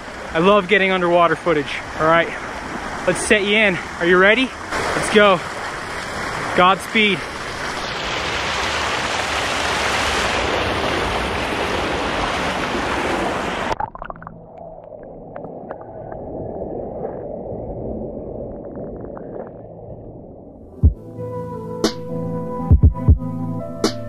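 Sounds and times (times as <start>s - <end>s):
creek water rushing: 0.0s - 13.8s
muffled underwater wash: 0.0s - 21.0s.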